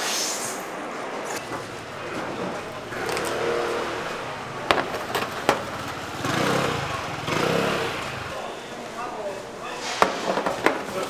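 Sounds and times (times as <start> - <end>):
street noise: 0.0 - 11.0
vehicle engine passing: 1.4 - 8.5
sharp knocks: 4.7 - 5.8.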